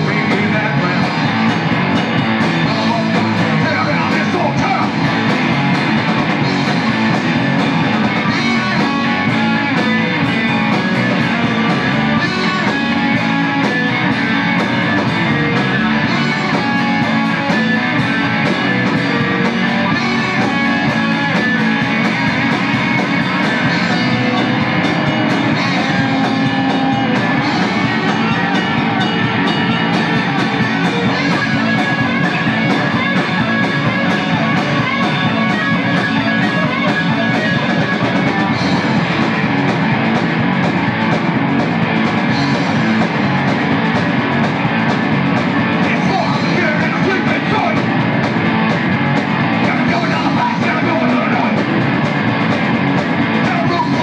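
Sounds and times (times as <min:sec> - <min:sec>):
punk rock band playing: 0:00.0 - 0:54.0.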